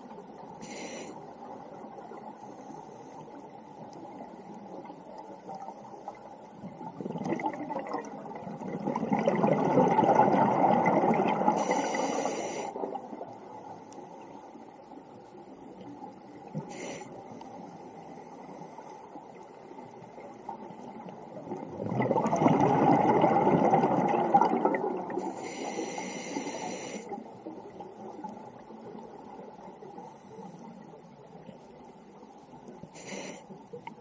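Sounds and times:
steady underwater hiss: 0:00.0 - 0:34.0
breath hissing through regulator: 0:00.6 - 0:01.2, 0:11.5 - 0:12.8, 0:16.6 - 0:17.2, 0:25.2 - 0:27.2, 0:32.9 - 0:33.6
exhaled bubbles rumbling underwater: 0:03.3 - 0:32.9.

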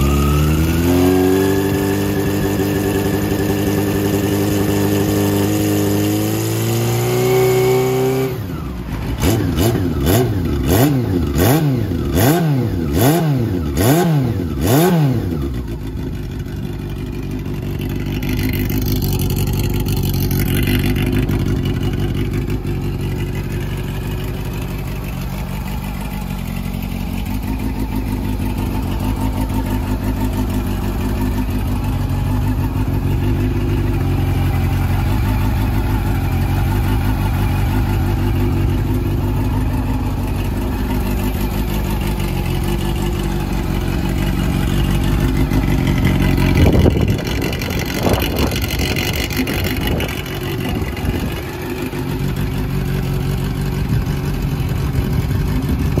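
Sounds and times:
engine revving in throttle blips: 0:00.0 - 0:15.6, 0:45.2 - 0:51.5, 0:54.9 - 0:56.0
motorcycle engine idling: 0:00.0 - 0:56.0.

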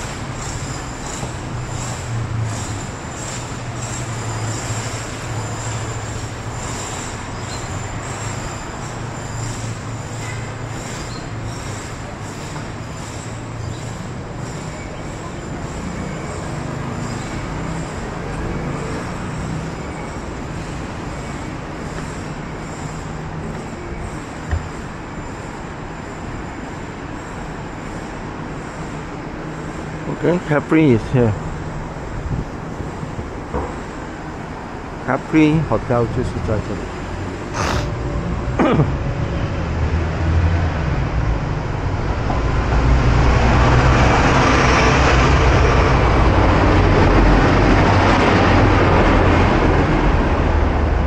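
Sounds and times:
passing vehicles hum: 0:00.0 - 0:51.0
short thump: 0:24.5 - 0:24.8.

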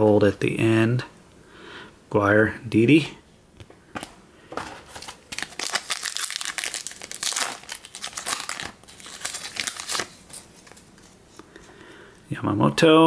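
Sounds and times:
foil wrapper crinkling: 0:04.8 - 0:11.2.

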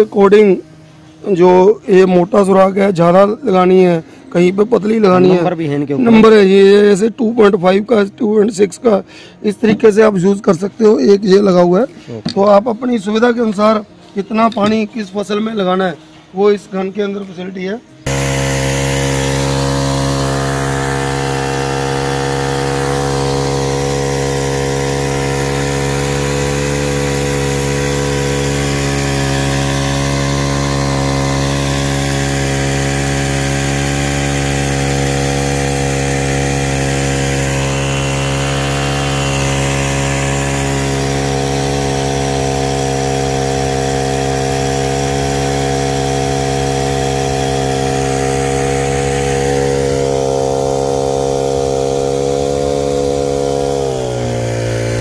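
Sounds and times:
small petrol engine running: 0:18.0 - 0:55.0
water spray hissing: 0:18.1 - 0:55.0.

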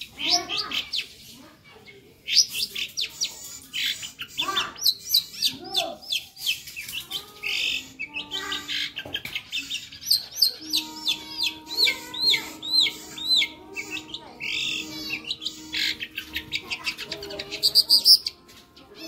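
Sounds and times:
bird singing varied chirps: 0:00.0 - 0:19.0
arched whistled notes: 0:10.6 - 0:16.6.

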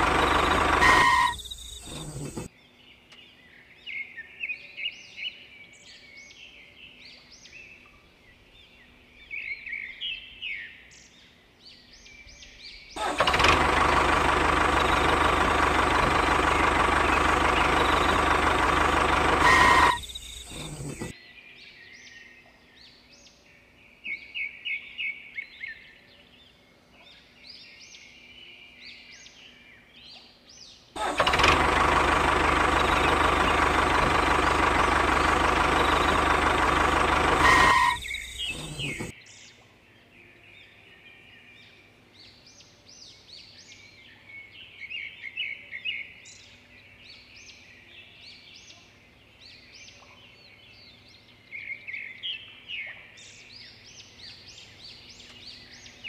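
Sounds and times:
birds chirping: 0:00.0 - 0:02.5, 0:12.7 - 0:21.1, 0:31.0 - 0:39.4
small electric motor running: 0:00.0 - 0:02.5, 0:13.0 - 0:21.1, 0:31.0 - 0:39.1.

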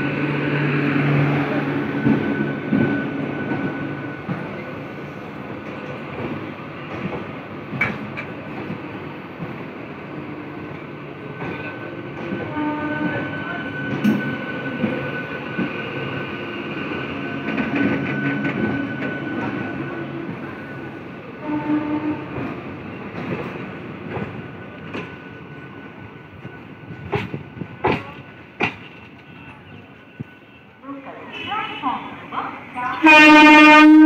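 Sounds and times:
train rumble: 0:00.0 - 0:34.0
train wheels clicking over rail joints: 0:05.4 - 0:09.6, 0:22.3 - 0:29.4.

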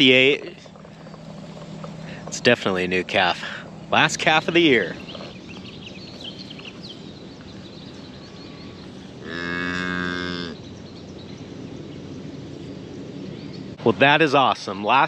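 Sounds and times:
cow mooing: 0:08.3 - 0:10.6.

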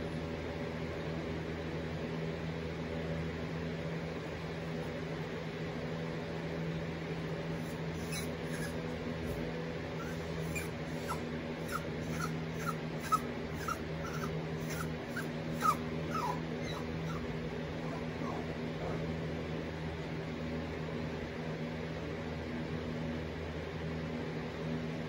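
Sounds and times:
fan hum: 0:00.0 - 0:25.0
puppy whimpering: 0:07.6 - 0:19.3.

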